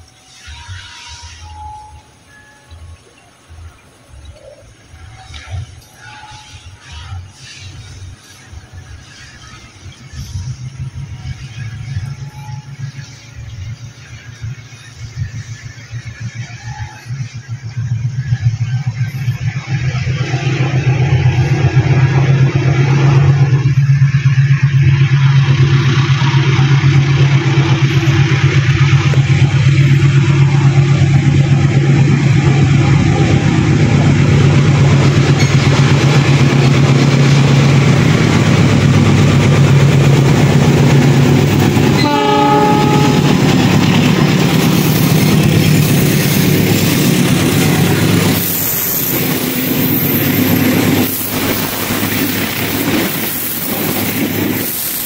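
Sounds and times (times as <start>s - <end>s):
train engine hum: 0.0s - 55.0s
train wheels clattering: 0.0s - 55.0s
train horn blast: 0.3s - 2.6s, 4.9s - 7.9s, 39.6s - 44.1s.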